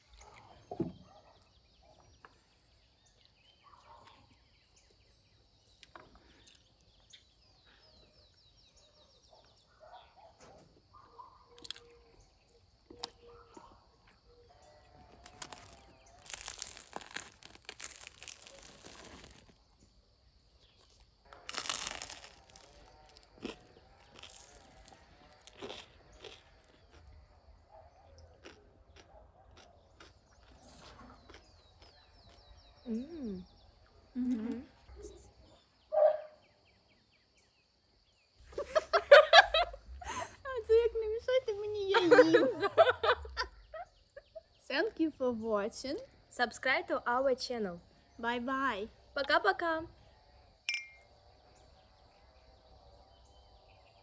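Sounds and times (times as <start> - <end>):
flatbread crackling and crunching: 14.0 - 27.4, 28.3 - 32.6.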